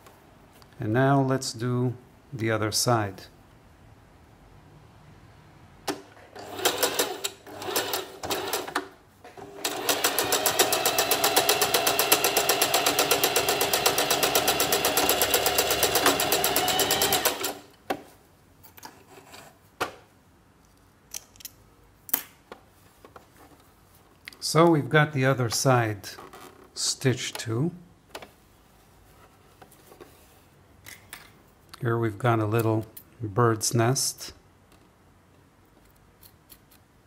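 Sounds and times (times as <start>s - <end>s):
sewing machine stitching: 6.3s - 8.8s, 9.4s - 17.7s.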